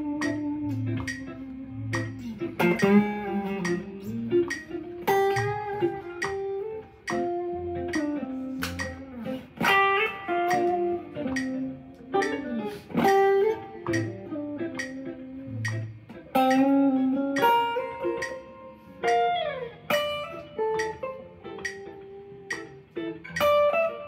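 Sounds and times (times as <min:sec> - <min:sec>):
clean electric guitars playing jazz: 0:00.0 - 0:24.0.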